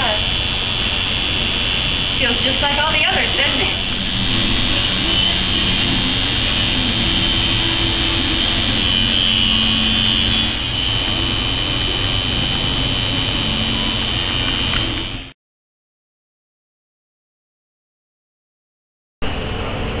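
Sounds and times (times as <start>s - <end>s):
tattoo machine buzzing: 0.0s - 15.4s.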